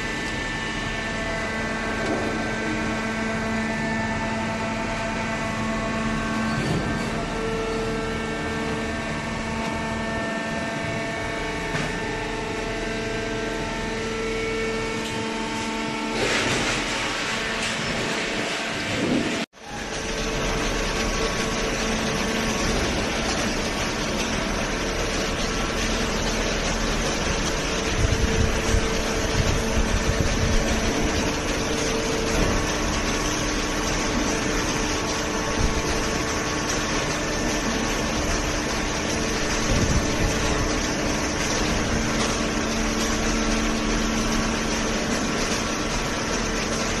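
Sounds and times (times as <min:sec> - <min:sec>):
hydraulic pump motor humming: 0:00.0 - 0:47.0.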